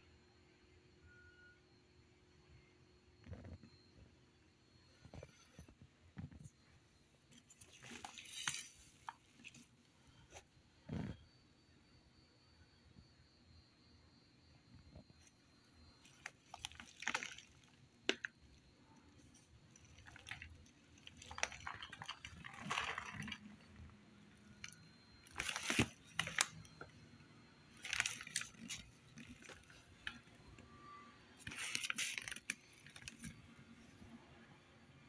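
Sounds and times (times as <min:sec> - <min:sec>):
bag of cat litter rustling: 0:19.7 - 0:23.8, 0:24.6 - 0:26.8, 0:27.7 - 0:30.3, 0:31.4 - 0:33.4.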